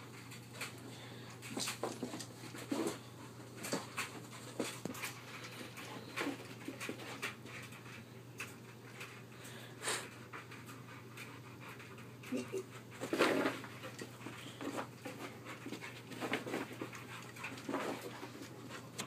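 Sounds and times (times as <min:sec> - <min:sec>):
dog panting hard: 0:08.6 - 0:19.0.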